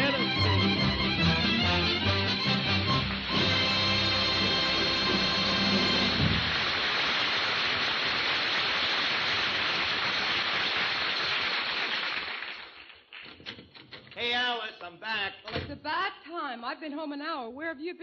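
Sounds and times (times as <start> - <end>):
audience applauding: 0.0 - 13.3.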